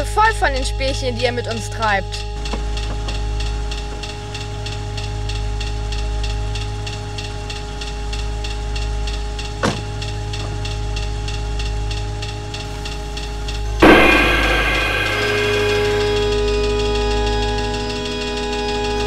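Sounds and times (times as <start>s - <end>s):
droning suspense music: 0.0s - 19.0s
sharp swoosh: 13.8s - 16.5s
ticking pulse: 13.8s - 16.9s.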